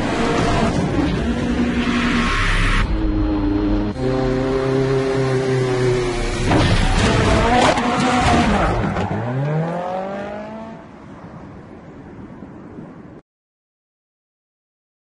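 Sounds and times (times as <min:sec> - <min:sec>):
tyres skidding: 0:00.0 - 0:10.6
rally car engine: 0:00.0 - 0:10.8.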